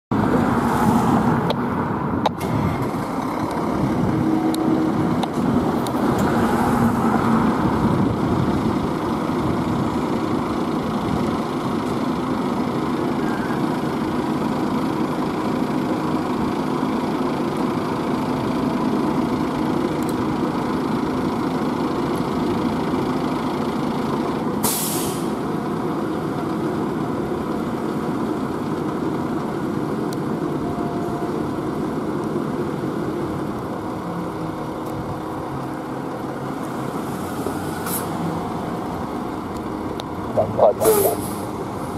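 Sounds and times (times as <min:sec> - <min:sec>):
fire engine diesel idling: 0:01.9 - 0:41.9
air brakes hissing: 0:24.6 - 0:25.4, 0:37.7 - 0:38.2, 0:40.9 - 0:41.6.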